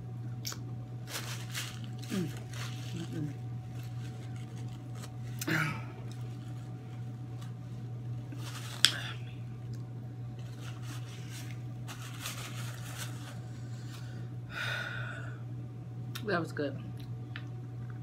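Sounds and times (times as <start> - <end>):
steady low hum: 0.0 - 18.0
chewing and handling food: 0.3 - 14.1.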